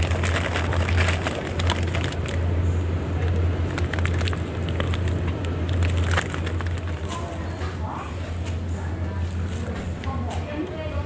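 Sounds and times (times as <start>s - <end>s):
plastic packaging crinkling: 0.0s - 2.5s, 3.6s - 7.6s
steady low hum: 0.0s - 11.0s.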